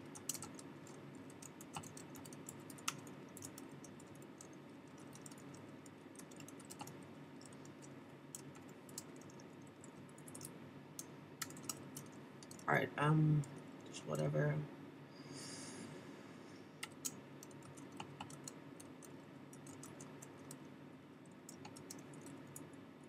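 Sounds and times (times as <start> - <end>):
computer keyboard key clicks: 0.0 - 5.6, 6.2 - 12.7, 16.8 - 20.6, 21.5 - 22.7.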